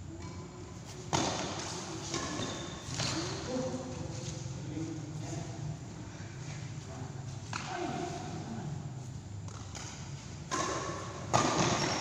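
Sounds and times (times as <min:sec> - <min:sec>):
rackets hitting shuttlecock: 0:01.1 - 0:03.4, 0:09.5 - 0:12.0.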